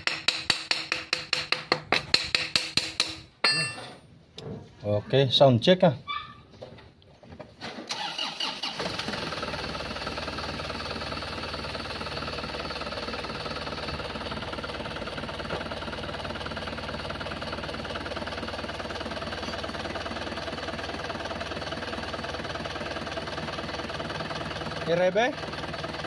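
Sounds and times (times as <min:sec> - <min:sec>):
car engine starting and idling: 0:07.6 - 0:26.0.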